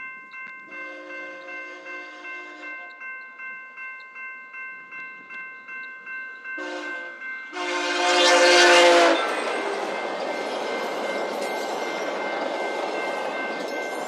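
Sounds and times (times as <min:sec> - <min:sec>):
railway crossing bell ringing: 0:00.0 - 0:14.0
train rolling past: 0:00.7 - 0:14.0
locomotive air horn: 0:00.8 - 0:02.8, 0:06.6 - 0:09.7.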